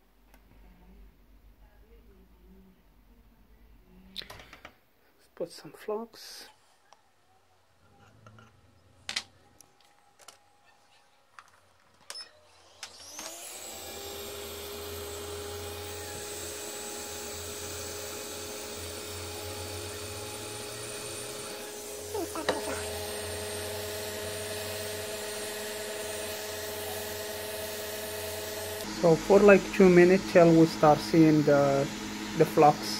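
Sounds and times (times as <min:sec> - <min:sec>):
heat gun blower whine: 0:12.1 - 0:32.9.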